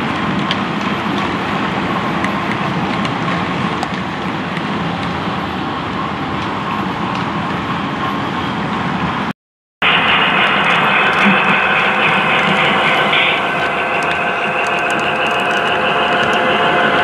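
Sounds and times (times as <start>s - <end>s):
model train wheels rumbling: 9.8s - 17.0s.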